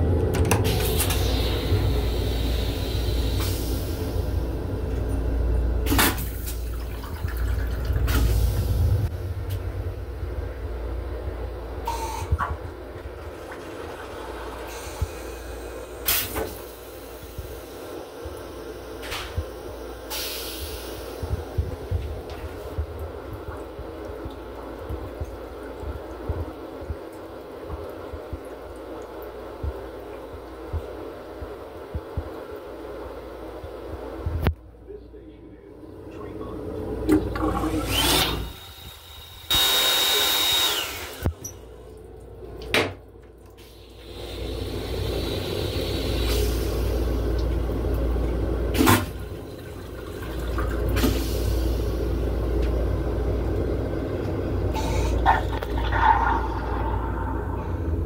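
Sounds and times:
railcar low hum: 0.0s - 28.5s, 40.7s - 58.0s
toilet flushing: 0.0s - 33.6s, 35.8s - 58.0s
hand dryer blowing: 37.1s - 41.5s, 43.6s - 47.4s, 50.4s - 52.4s, 54.7s - 58.0s.

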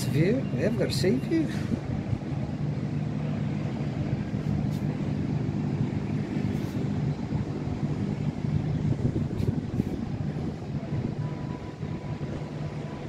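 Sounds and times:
distant city traffic hum: 0.0s - 13.0s.

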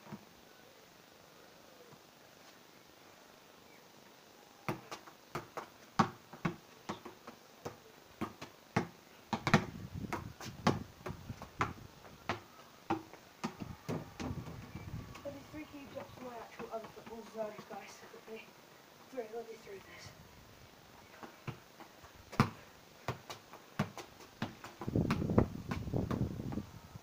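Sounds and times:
ball kicked thudding: 4.7s - 7.1s, 8.2s - 14.8s, 22.3s - 26.6s.

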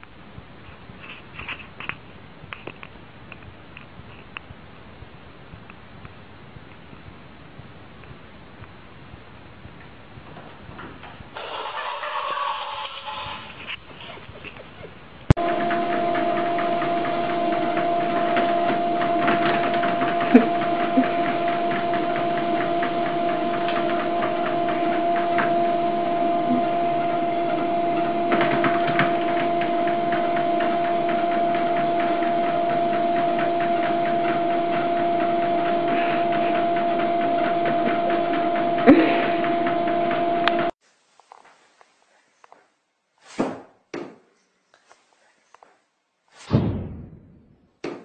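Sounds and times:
machine humming and ticking: 15.3s - 40.8s.

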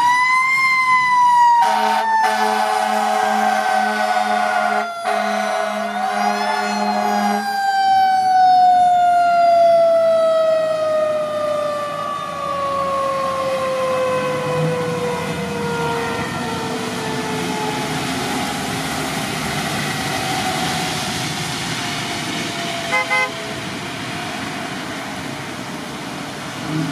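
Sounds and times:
fire engine air horn: 1.3s - 7.8s, 22.6s - 23.7s
mechanical siren winding down: 4.8s - 21.0s.

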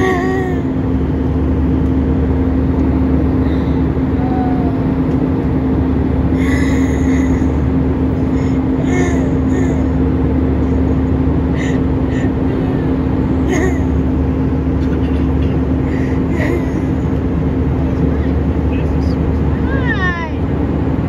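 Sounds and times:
constant low hum: 0.0s - 21.0s
jet engines and airflow rushing: 0.0s - 21.0s.

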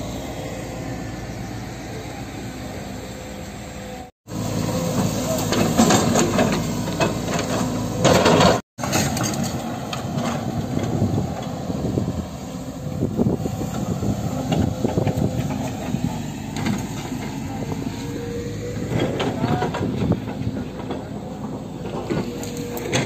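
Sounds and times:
excavator diesel engines running: 0.0s - 23.0s.

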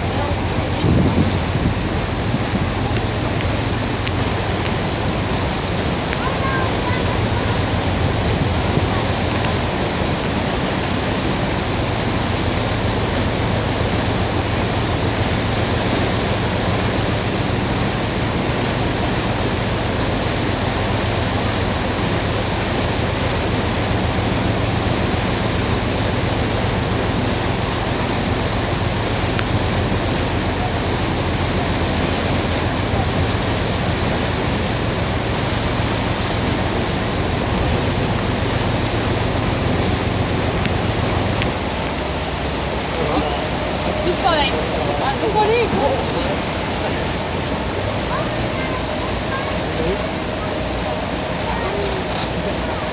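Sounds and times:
wind rushing: 0.0s - 6.1s
boat engine hum: 0.0s - 52.9s
water rushing past boat: 0.0s - 52.9s.

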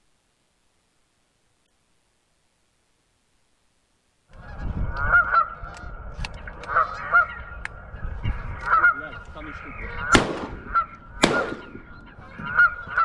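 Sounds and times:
geese honking: 4.3s - 13.0s
wind on microphone: 4.3s - 13.0s.

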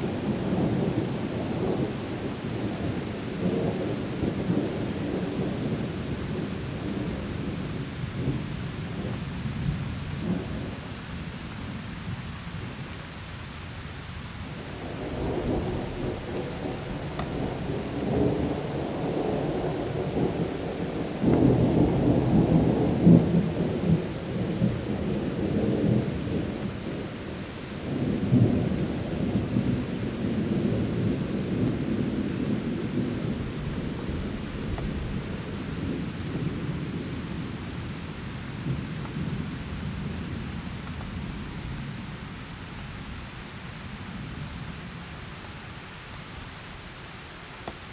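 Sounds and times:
steady rain: 0.0s - 47.9s
thunder rolling: 14.7s - 27.1s.

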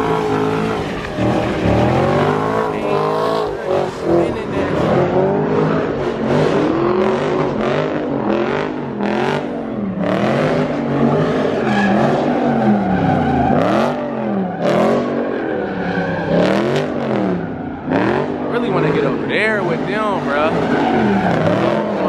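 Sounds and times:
car engine revving: 0.0s - 22.0s
tires screeching: 0.0s - 22.0s.

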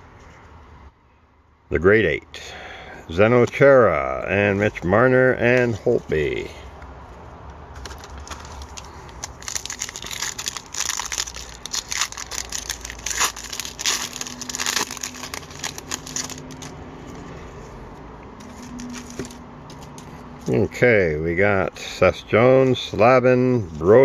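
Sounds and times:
foil wrapper tearing and crinkling: 7.8s - 16.8s, 18.4s - 19.4s.

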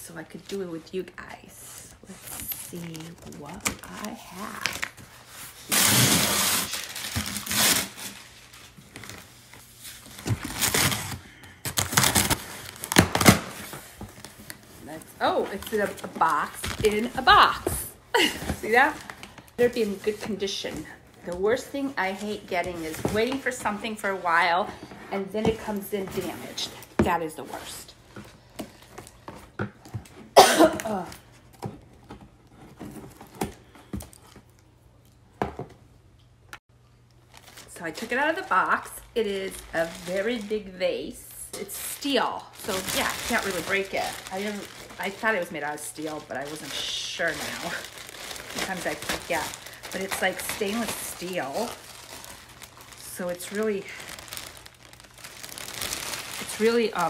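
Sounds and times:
packing tape pulled off box: 5.5s - 9.3s, 10.0s - 14.4s.

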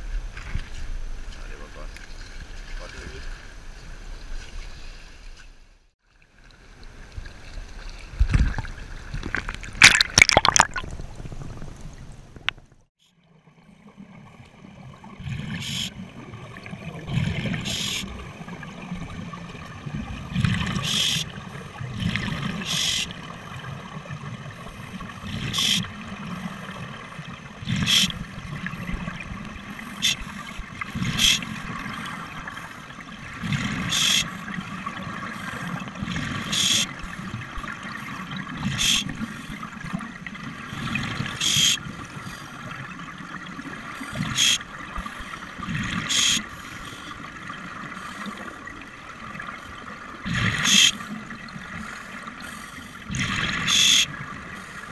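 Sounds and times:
underwater exhaled bubbles: 7.2s - 54.9s
knocks and splashes: 8.0s - 12.8s.

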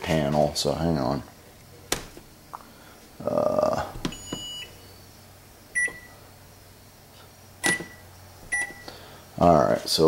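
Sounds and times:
microwave keypad beeps: 4.0s - 5.0s, 5.8s - 6.1s, 7.6s - 8.9s.

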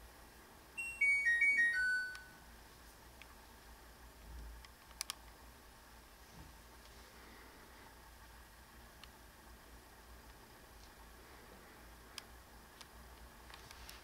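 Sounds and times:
descending electronic chime: 0.8s - 2.4s.

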